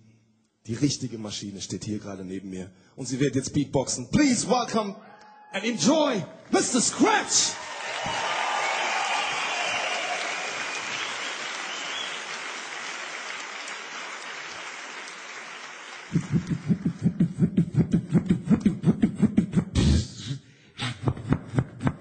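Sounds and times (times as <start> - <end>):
audience applause: 6.6 - 17.3
beatboxing bass pulses: 16.1 - 22.0.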